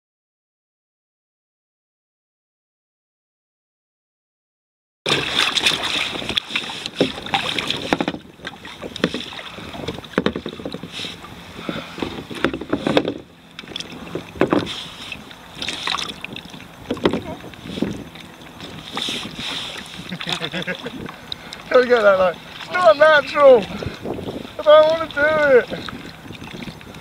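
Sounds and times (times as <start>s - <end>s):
water splashing against kayak: 5.1s - 27.0s
wind buffeting microphone: 5.1s - 27.0s
knocks on kayak: 7.0s - 8.2s, 9.0s - 10.8s, 11.6s - 13.2s, 14.1s - 14.7s, 16.8s - 17.4s.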